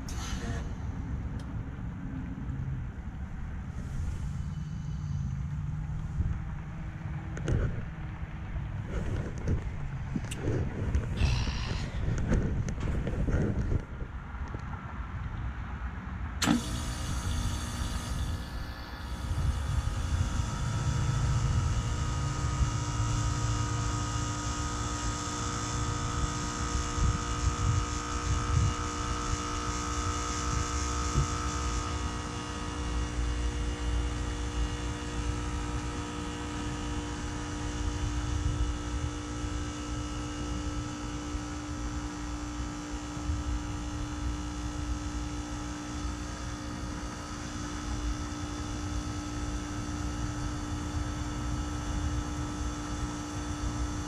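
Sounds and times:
compressor hum: 0.0 - 54.0.

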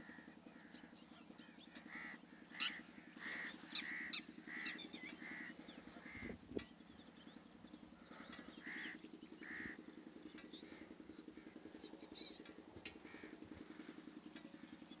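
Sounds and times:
bird short repeated calls: 0.0 - 6.4, 8.1 - 9.8
steady low hum: 0.0 - 15.0.

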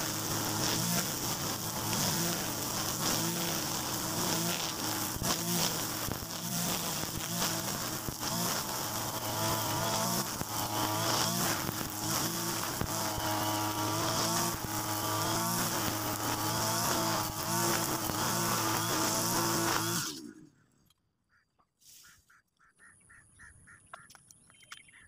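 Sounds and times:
brush cutter engine running: 0.0 - 20.5
trimmer line whipping through grass: 0.0 - 20.5.

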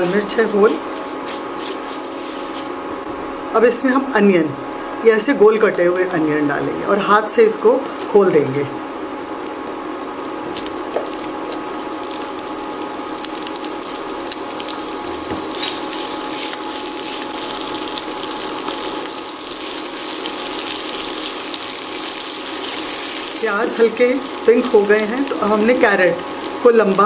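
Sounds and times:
onions sizzling in hot oil: 0.0 - 2.7, 9.0 - 27.0.

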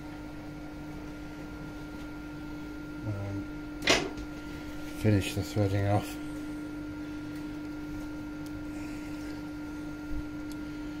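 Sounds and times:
machine hum: 0.0 - 11.0.

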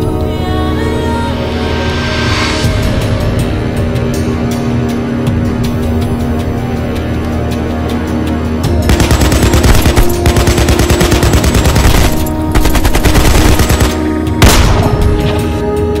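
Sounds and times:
dramatic background music: 0.0 - 16.0
rapid automatic gunfire: 8.9 - 14.8.

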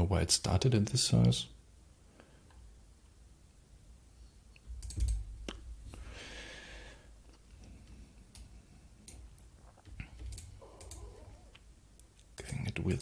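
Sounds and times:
keyboard and mouse clicks: 4.6 - 5.6, 8.3 - 12.8.

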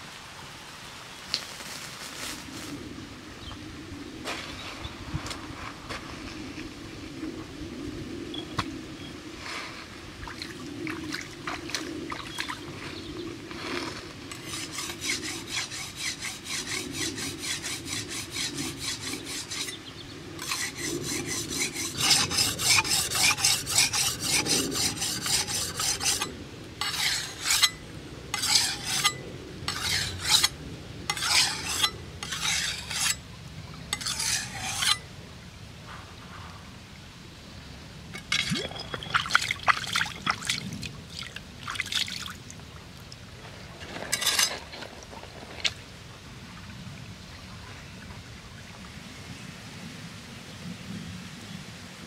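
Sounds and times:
blade scraping on whetstone: 14.3 - 19.8, 20.4 - 33.2, 33.9 - 35.1, 44.1 - 44.6.

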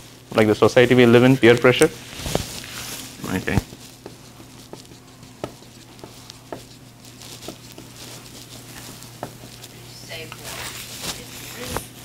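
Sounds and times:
low room hum: 0.0 - 12.0
marker writing on a whiteboard: 3.6 - 9.7.

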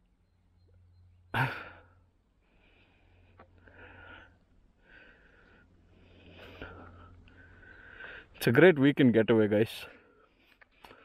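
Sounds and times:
person breathing: 1.4 - 8.4, 10.0 - 11.0.

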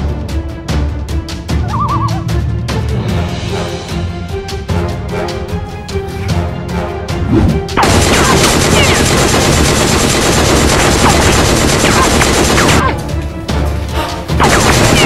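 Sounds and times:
rapid gunfire sound effect: 7.8 - 12.9, 14.4 - 15.0.

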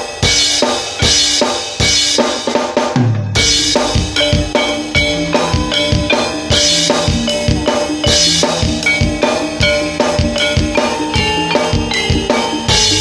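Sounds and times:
cymbal crash: 0.0 - 13.0
drums beating quick rhythm: 0.0 - 13.0
ringing tuned percussion: 0.0 - 13.0.

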